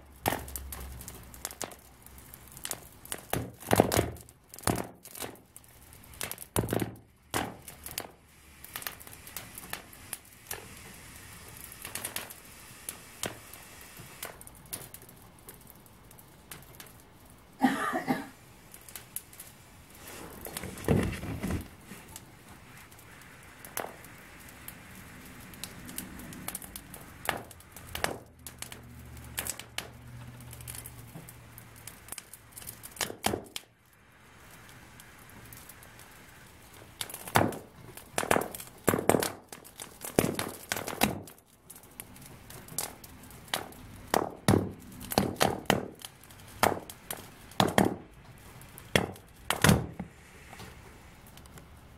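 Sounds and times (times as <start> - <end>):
deflating balloon crackling: 18.7 - 28.1.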